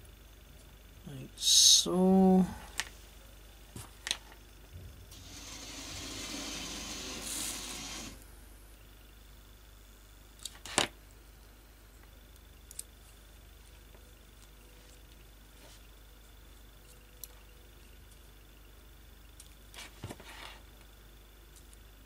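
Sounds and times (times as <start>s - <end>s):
small electric motor whirring: 5.1s - 8.2s.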